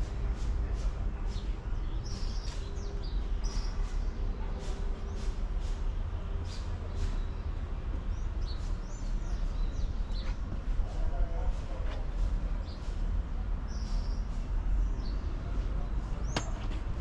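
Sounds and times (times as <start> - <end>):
small birds chirping: 0.0 - 17.0
footsteps walking: 10.1 - 10.9.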